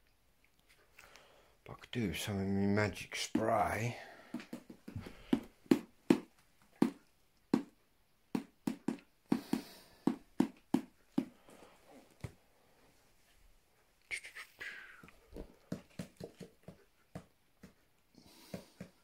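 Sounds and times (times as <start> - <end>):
footsteps on hard floor: 4.4 - 7.0.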